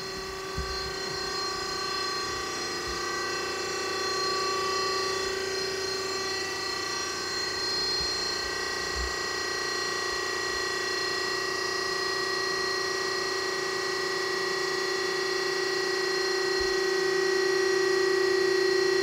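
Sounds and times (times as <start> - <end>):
hydraulic lift whining: 0.0 - 9.6.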